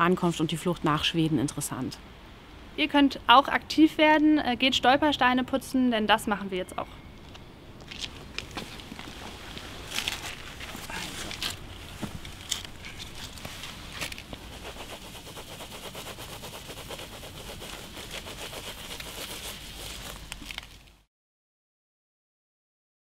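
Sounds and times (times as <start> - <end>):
sponge scrubbing metal plaque: 14.4 - 20.2.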